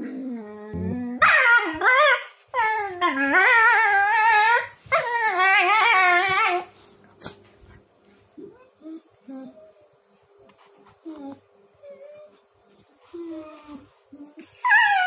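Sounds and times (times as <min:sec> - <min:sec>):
dog low grumbling: 0:00.0 - 0:01.2
dog whining and howling: 0:00.0 - 0:06.7, 0:11.1 - 0:15.0.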